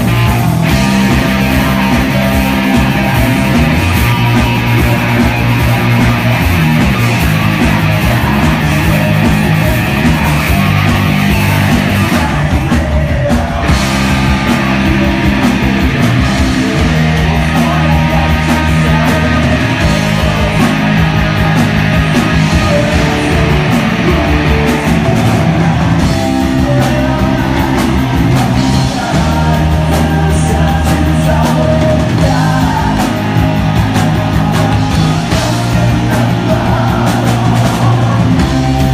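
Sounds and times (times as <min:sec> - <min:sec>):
drums: 0:00.0 - 0:38.9
electric guitar: 0:00.0 - 0:38.9
man singing into a microphone: 0:07.6 - 0:25.3, 0:26.0 - 0:38.9.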